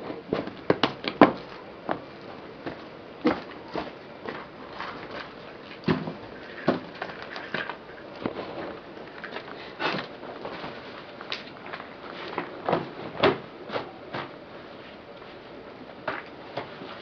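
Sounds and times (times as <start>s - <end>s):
steady background hiss: 0.0s - 17.0s
shoes scuffing on gritty dirt: 1.3s - 12.6s.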